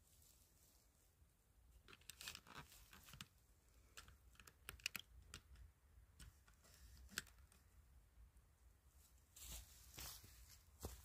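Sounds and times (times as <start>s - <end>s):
faint crackles and clicks: 1.8s - 7.7s.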